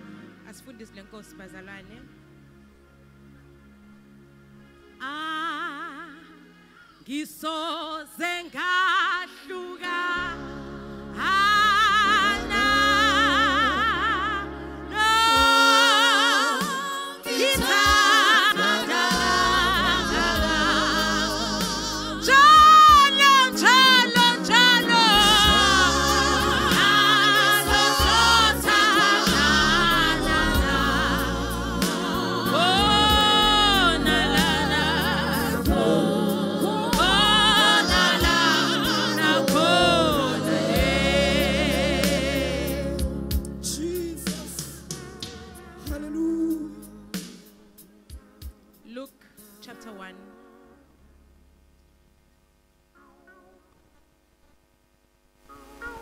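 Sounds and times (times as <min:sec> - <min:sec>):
low instrumental accompaniment: 0:00.0 - 0:05.1, 0:10.2 - 0:15.4, 0:17.4 - 0:47.1
woman singing gospel with vibrato: 0:05.0 - 0:06.4, 0:07.1 - 0:45.2.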